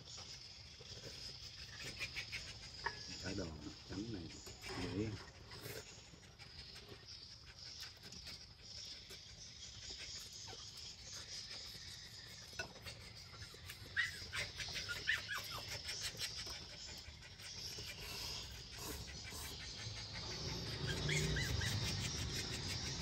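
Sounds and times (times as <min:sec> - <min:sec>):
bird chirps: 0:00.0 - 0:23.0.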